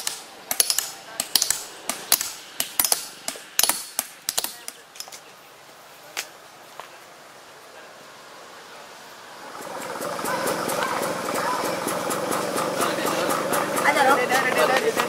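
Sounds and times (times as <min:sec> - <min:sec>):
hammer striking stone: 0:00.0 - 0:05.1.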